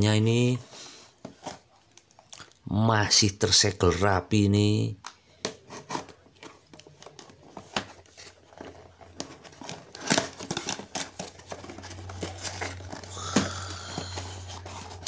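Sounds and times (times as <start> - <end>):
cardboard flaps scraping and rustling: 5.6 - 15.0
blade slitting cardboard: 9.4 - 12.9.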